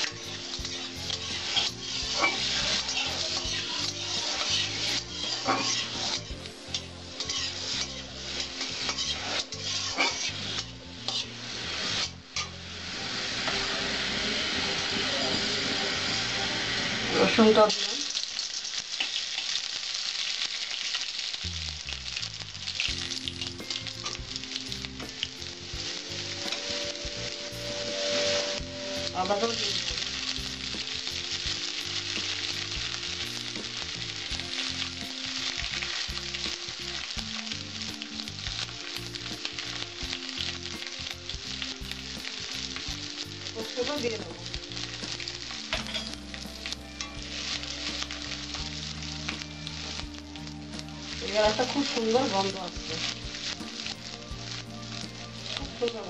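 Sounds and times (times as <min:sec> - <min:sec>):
spices sizzling in hot oil: 0:00.0 - 0:56.0
metal spatula scraping pan: 0:00.6 - 0:11.3, 0:25.9 - 0:30.1, 0:45.7 - 0:46.2.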